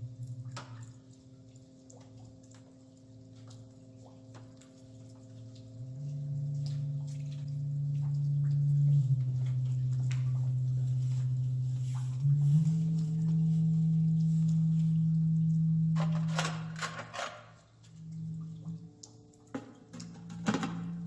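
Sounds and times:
faint clicks and drips: 0.0s - 21.0s
low electronic drone: 5.1s - 21.0s.

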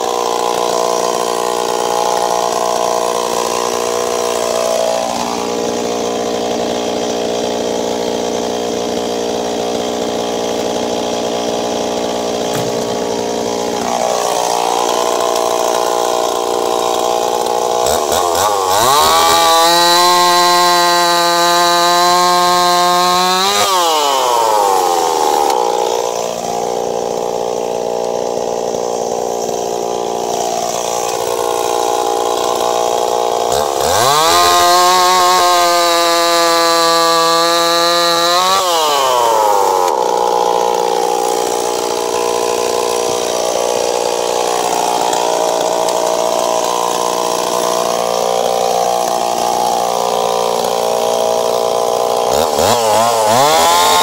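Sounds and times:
chainsaw running: 0.0s - 54.0s.

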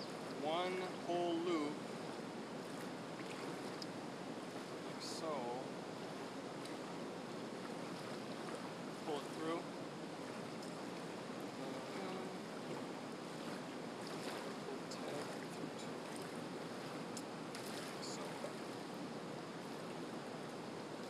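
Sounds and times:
rushing outdoor background noise: 0.0s - 21.0s
faint high ticks: 6.6s - 6.8s, 10.6s - 10.8s, 17.1s - 17.8s.

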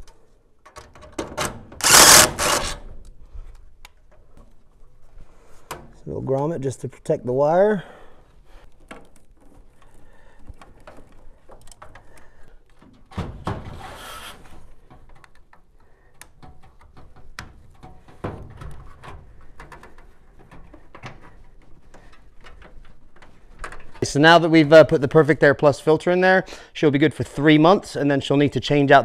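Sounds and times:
hands working sheet metal: 1.8s - 2.8s.

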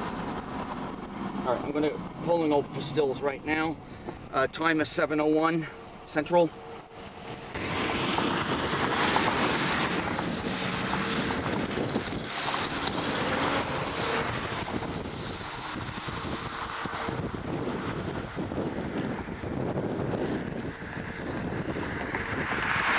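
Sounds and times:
wind buffeting microphone: 6.9s - 22.9s.

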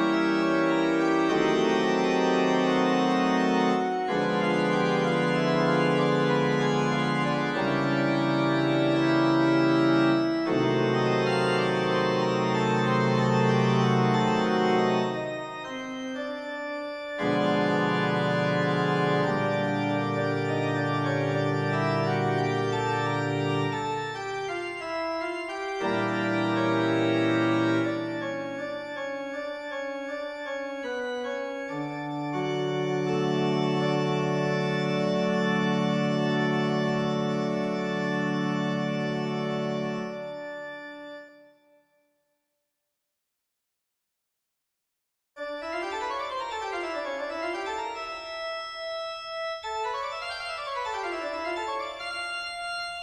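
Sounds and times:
organ chords: 0.0s - 41.7s, 45.4s - 53.0s.

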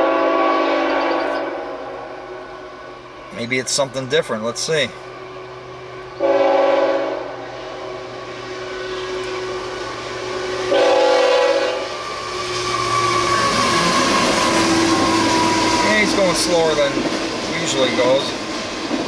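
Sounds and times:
locomotive air horn: 0.0s - 2.7s, 5.7s - 9.5s, 10.2s - 15.8s
train rumble: 0.0s - 19.0s.

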